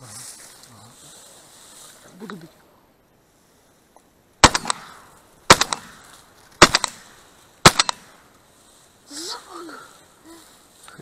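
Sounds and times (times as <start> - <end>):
shotgun shots with echo: 4.4 - 8.2.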